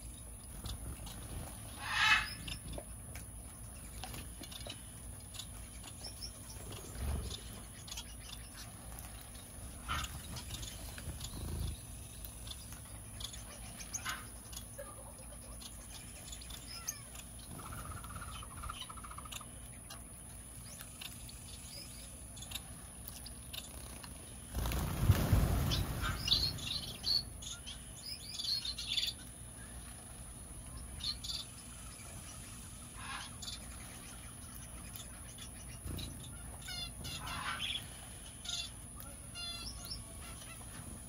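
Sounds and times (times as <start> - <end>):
small birds chirping: 0.0 - 41.0
bird fluttering trill: 0.5 - 2.8, 3.6 - 14.8, 15.8 - 19.4, 22.4 - 27.7.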